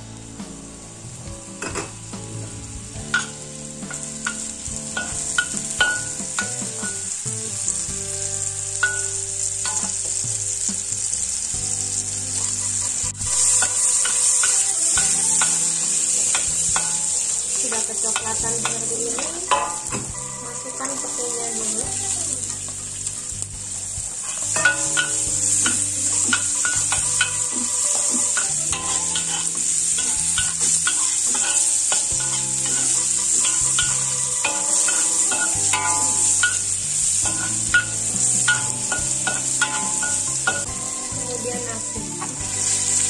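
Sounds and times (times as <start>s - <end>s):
background music: 0.0s - 43.0s
hot oil sizzling in a wok: 0.0s - 43.0s
metal spatula scraping a wok: 3.2s - 7.2s, 11.9s - 41.1s.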